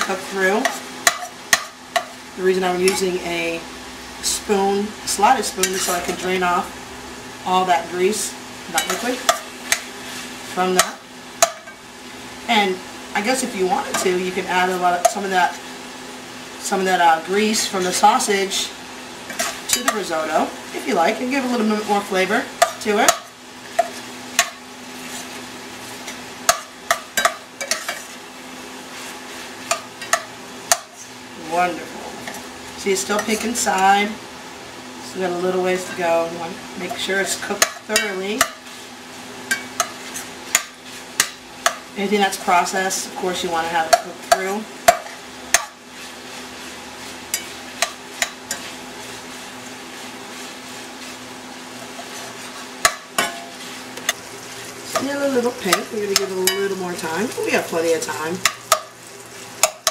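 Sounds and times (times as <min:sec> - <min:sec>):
sausage sizzling in pan: 0:00.0 - 0:59.9
metal spoon scraping pan: 0:05.4 - 0:06.4, 0:08.7 - 0:11.8, 0:19.3 - 0:20.1, 0:26.0 - 0:28.1, 0:33.0 - 0:33.9, 0:47.0 - 0:49.2, 0:54.9 - 0:58.9.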